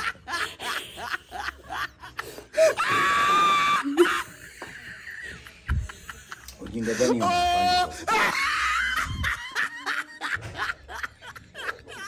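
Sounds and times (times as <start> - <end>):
woman laughing hard: 0.0 - 2.9, 3.5 - 12.0
woman squealing: 2.8 - 4.2.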